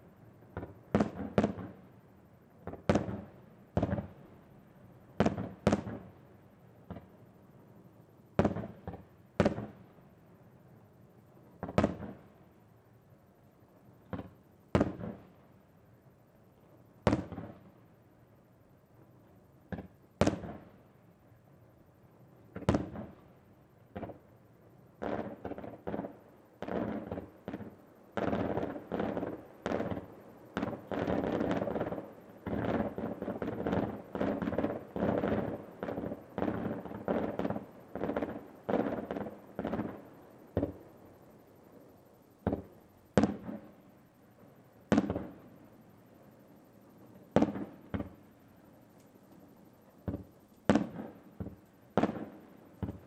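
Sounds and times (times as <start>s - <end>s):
fireworks bangs: 5.2s - 6.1s, 25.0s - 41.0s, 42.4s - 43.8s, 44.9s - 45.5s, 47.3s - 48.3s, 50.0s - 53.0s.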